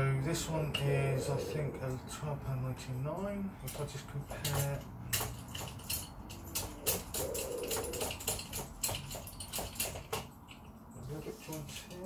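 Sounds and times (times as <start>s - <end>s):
tripod heads clicking and knocking: 4.4s - 10.6s.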